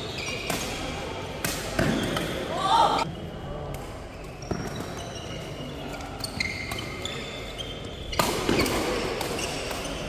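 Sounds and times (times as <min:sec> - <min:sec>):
shoes squeaking on court: 0:00.0 - 0:00.9, 0:04.1 - 0:10.0
rackets hitting shuttlecock: 0:00.3 - 0:02.4, 0:08.1 - 0:10.0.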